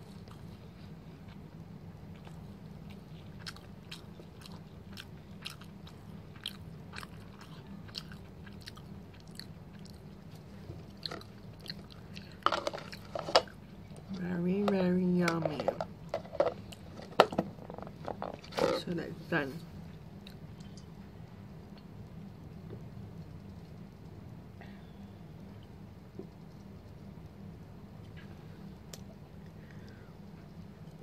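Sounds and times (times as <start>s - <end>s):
person chewing food: 0.0s - 14.2s, 20.2s - 21.0s
low hum: 0.0s - 31.0s.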